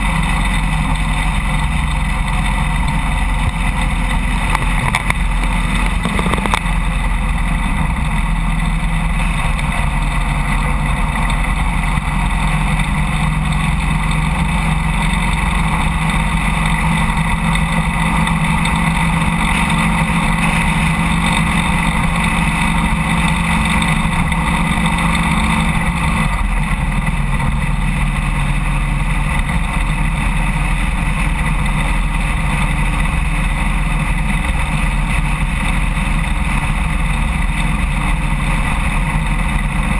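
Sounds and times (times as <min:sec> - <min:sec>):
motorcycle engine drone: 0:00.0 - 0:39.9
road and wind noise: 0:00.0 - 0:39.9.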